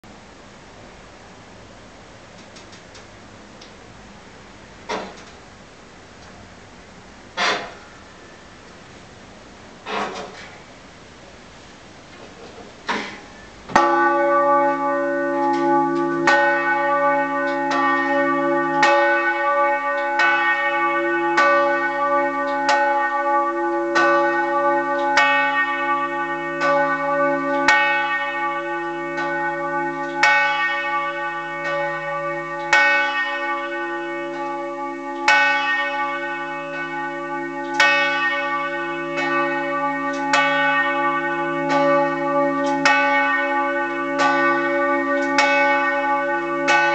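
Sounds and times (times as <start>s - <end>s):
church bell ringing: 7.4s - 8.6s, 13.4s - 46.9s.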